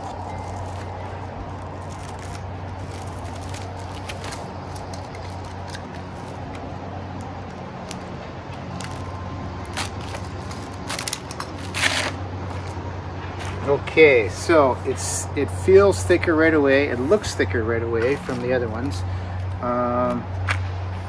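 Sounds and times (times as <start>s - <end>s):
paper label peeled off: 0.0s - 12.8s
wrapping being slit: 0.0s - 12.8s
crinkles and crackles: 0.0s - 13.7s.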